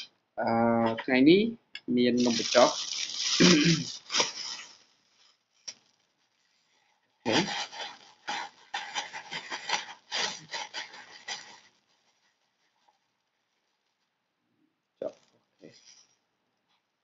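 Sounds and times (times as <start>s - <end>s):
plastic bag crinkling: 2.2s - 14.1s.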